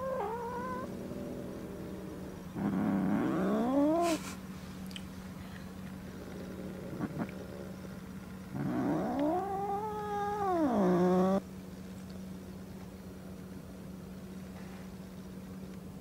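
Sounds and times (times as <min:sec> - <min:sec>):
cat yowling: 0:00.0 - 0:01.0, 0:08.6 - 0:11.4.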